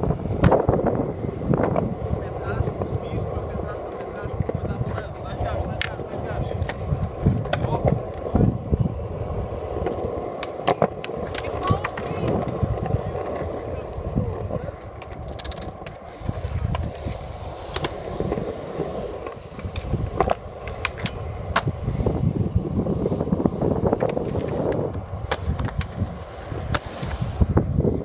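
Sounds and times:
skateboard clicks and knocks: 0.0s - 27.6s
skateboard wheels rolling on concrete: 0.0s - 28.0s.

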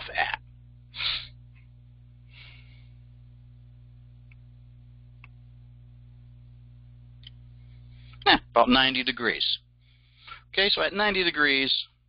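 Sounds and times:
low steady hum: 0.0s - 12.0s
soft breath: 2.2s - 3.1s, 9.8s - 10.5s
faint clicks: 5.2s - 5.4s.

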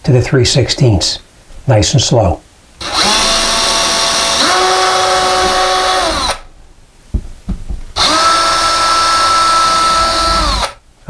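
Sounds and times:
cordless drill boring drywall: 2.8s - 6.5s, 8.0s - 10.8s.

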